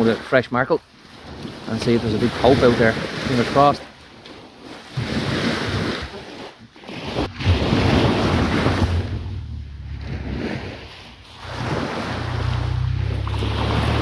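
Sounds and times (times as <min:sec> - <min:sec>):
surf washing on beach: 0:00.0 - 0:14.0
wind buffeting microphone: 0:07.0 - 0:12.6.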